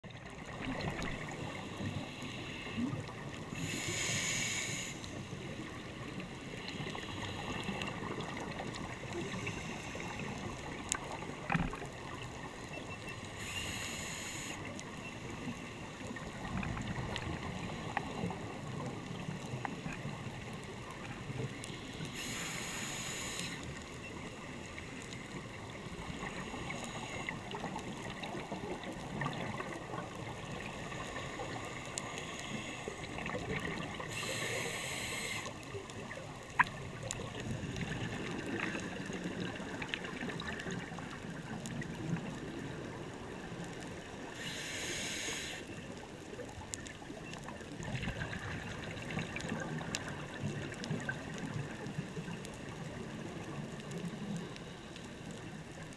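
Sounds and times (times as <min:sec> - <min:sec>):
steady underwater hiss: 0:00.2 - 0:55.9
scuba diver breathing: 0:01.5 - 0:05.6, 0:09.1 - 0:10.7, 0:13.3 - 0:15.2, 0:21.7 - 0:23.8, 0:30.7 - 0:33.3, 0:34.0 - 0:35.7, 0:44.4 - 0:45.7.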